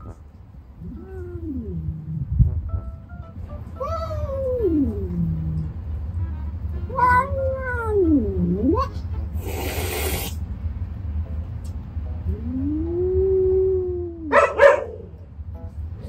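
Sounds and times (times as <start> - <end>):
cat hissing: 9.3 - 10.4
short sharp cat cries: 9.4 - 10.4
cats yowling: 12.3 - 15.2.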